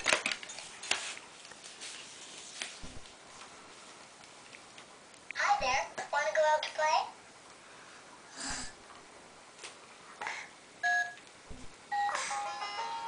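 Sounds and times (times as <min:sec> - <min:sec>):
soft handling noises: 0:00.0 - 0:05.3
toy phone two-tone beeps: 0:10.8 - 0:11.2, 0:11.9 - 0:13.0.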